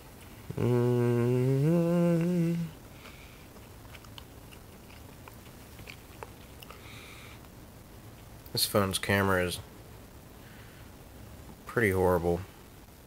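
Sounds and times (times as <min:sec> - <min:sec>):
man humming: 0:00.4 - 0:02.8.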